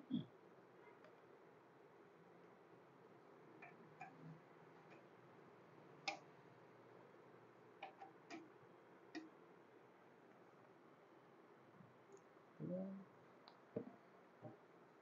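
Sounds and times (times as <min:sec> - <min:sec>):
faint sharp clicks: 0:06.0 - 0:06.3, 0:09.1 - 0:09.3.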